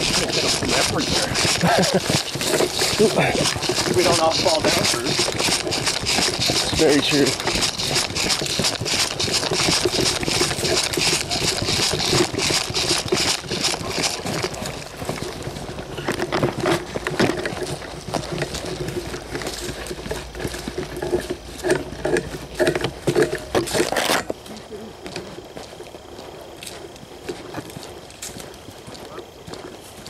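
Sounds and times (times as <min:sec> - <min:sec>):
fabric brushing microphone: 0:00.0 - 0:21.8
footsteps in dry leaves: 0:00.0 - 0:22.6, 0:23.5 - 0:30.0.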